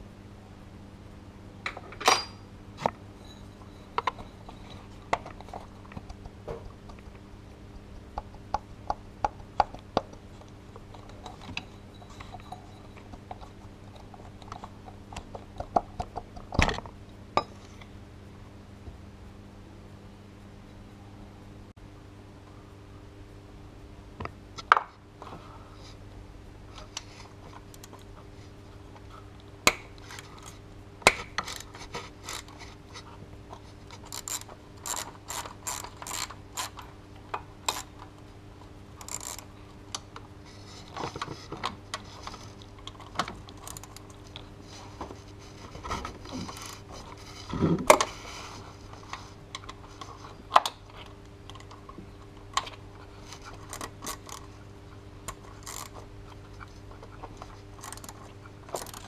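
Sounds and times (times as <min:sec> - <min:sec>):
hand ratchet clicking: 0:34.0 - 0:36.8, 0:39.0 - 0:39.4, 0:55.6 - 0:55.9.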